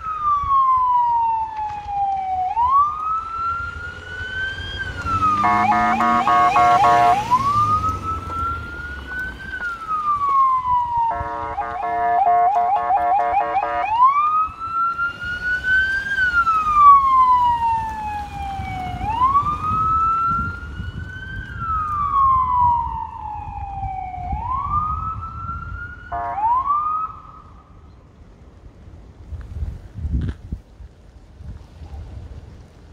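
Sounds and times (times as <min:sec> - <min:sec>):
electronic police siren wailing: 0:00.0 - 0:27.6
buzzy horn blast: 0:05.3 - 0:07.3, 0:11.1 - 0:14.0.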